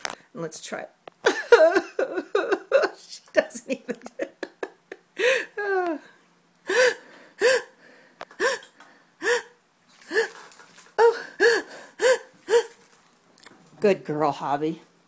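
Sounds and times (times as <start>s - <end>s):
woman gasping: 5.2s - 12.9s.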